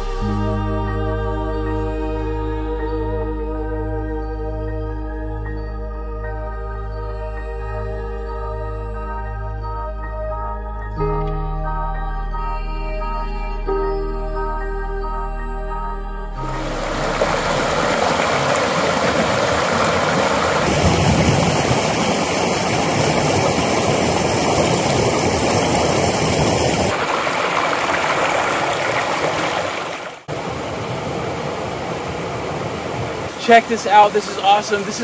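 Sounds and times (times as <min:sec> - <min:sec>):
river water rushing over rocks: 0:16.5 - 0:35.0.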